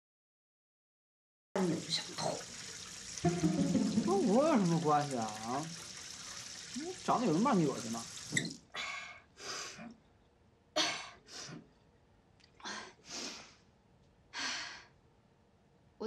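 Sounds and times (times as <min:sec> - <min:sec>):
woman breathing heavily: 0:12.6 - 0:13.7, 0:14.3 - 0:15.0.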